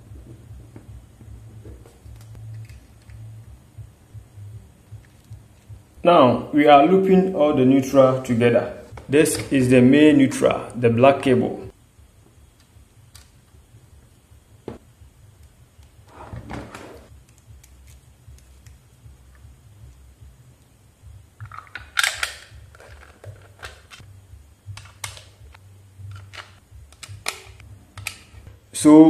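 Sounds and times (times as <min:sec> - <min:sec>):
low hum: 0:00.0 - 0:06.4.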